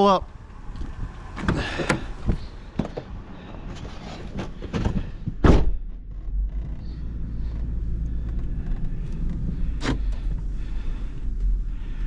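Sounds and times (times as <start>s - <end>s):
truck engine rumbling: 0.0s - 12.0s
truck door slamming: 4.4s - 5.9s.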